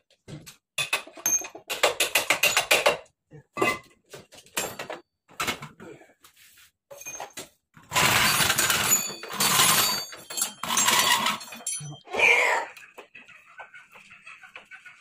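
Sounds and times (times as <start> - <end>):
loud metal scraping and clattering: 7.9 - 11.7
wrench clicks and clanks: 8.0 - 11.9.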